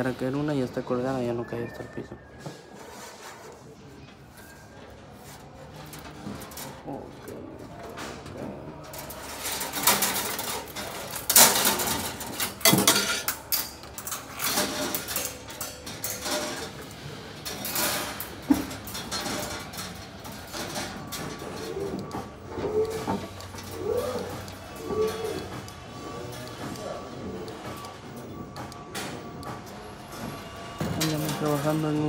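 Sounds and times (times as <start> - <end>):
metal wire clinking and rattling: 8.9 - 21.9.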